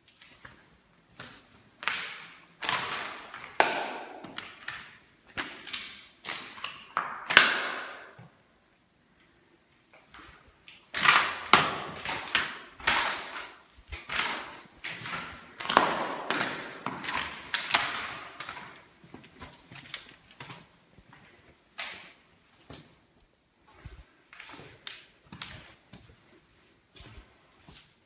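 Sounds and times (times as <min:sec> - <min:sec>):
footsteps on dusty floor: 0:11.8 - 0:28.0.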